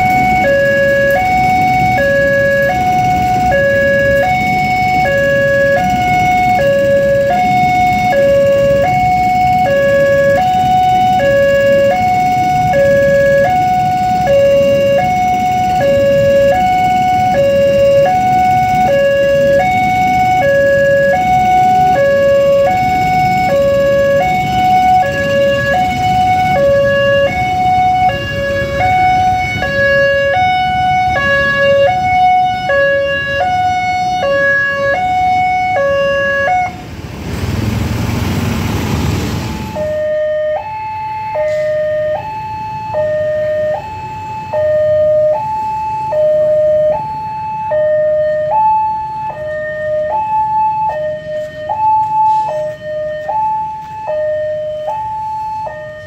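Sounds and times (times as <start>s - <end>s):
two-tone crossing alarm: 0.0s - 37.3s, 39.3s - 56.0s
train carriages rumbling past: 0.0s - 40.5s.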